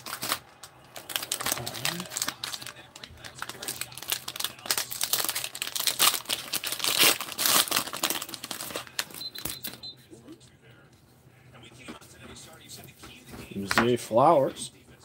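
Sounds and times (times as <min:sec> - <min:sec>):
cellophane wrapper crinkling: 0:00.0 - 0:09.8.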